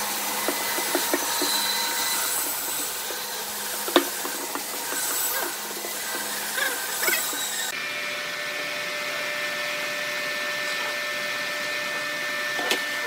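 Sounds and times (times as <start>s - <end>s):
electric motor humming: 0.0s - 13.0s
scraping strokes: 0.4s - 7.7s.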